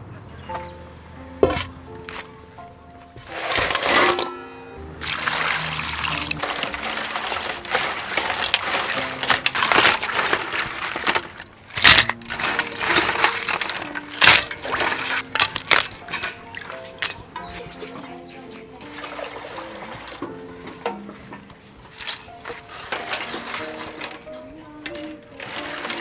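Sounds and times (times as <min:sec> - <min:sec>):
crabs clattering into metal colander: 0:03.2 - 0:04.4, 0:05.0 - 0:26.0
water splashing in a basin: 0:05.0 - 0:18.0, 0:18.8 - 0:20.4
running water: 0:05.0 - 0:21.4.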